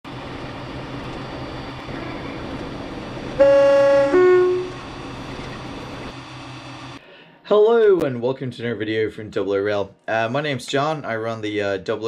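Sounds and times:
steady rumble: 0.1 - 7.0
two-note train horn: 3.4 - 5.0.

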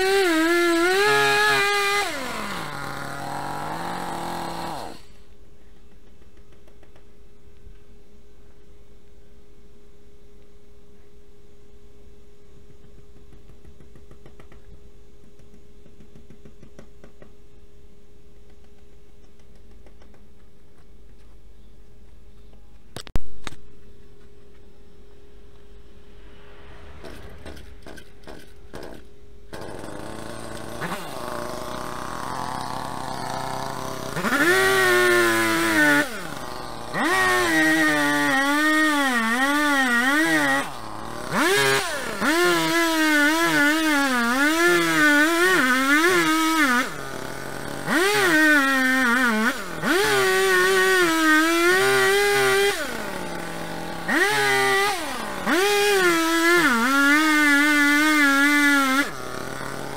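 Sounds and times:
chainsaw cutting into stump: 0.0 - 5.2, 27.1 - 59.9
chainsaw idling and revving: 0.0 - 5.2, 27.1 - 59.9.

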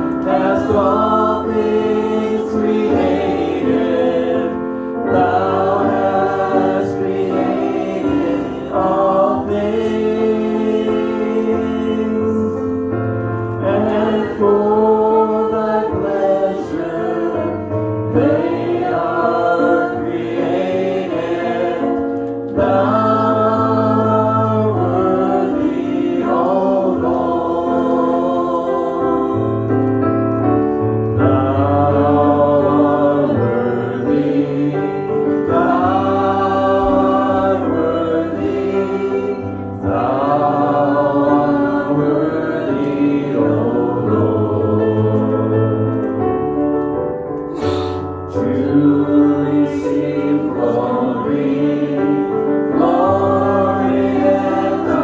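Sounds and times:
group singing gospel chorus: 0.0 - 46.4, 47.4 - 55.0
digital keyboard: 0.0 - 55.0.

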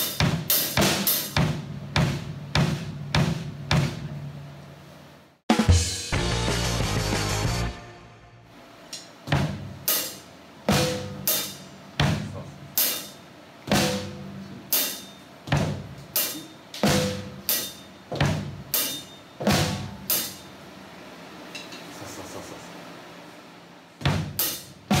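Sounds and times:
drum kit dance beat: 0.0 - 4.5, 5.5 - 8.4, 9.1 - 20.5, 24.0 - 25.0.

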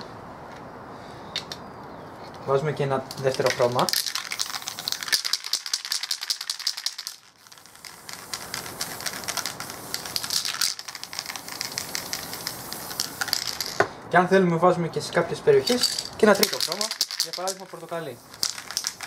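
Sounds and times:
spray can ball rattling: 3.1 - 13.9, 15.6 - 19.0
spray can hissing: 3.3 - 13.9, 15.7 - 19.0.

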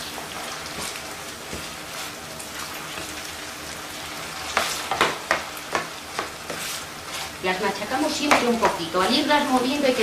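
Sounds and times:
potatoes sizzling in oil: 0.0 - 10.0
spatula scraping a pan: 4.5 - 9.1.

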